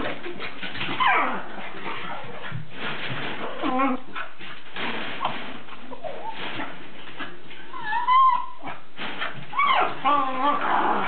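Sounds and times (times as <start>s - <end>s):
small dog whining: 1.0s - 1.5s, 7.7s - 8.8s, 9.5s - 11.0s.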